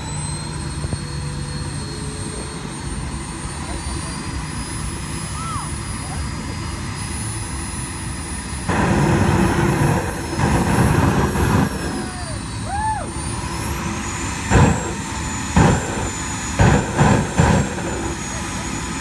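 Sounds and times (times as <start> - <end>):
jet turbine whine: 0.0 - 19.0
exhaust flame rumbling bursts: 5.8 - 19.0.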